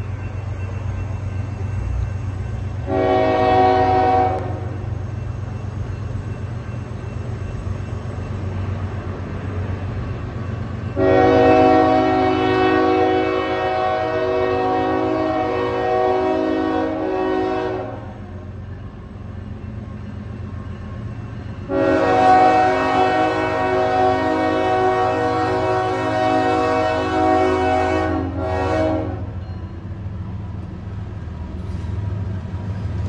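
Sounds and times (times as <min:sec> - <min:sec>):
train rumble: 0:00.0 - 0:33.0
locomotive air horn blasts: 0:02.8 - 0:04.8, 0:11.0 - 0:18.2, 0:21.6 - 0:29.4.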